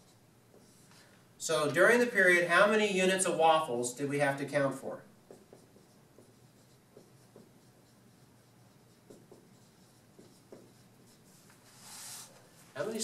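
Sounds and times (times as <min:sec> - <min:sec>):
marker squeaking on whiteboard: 0:05.3 - 0:12.4.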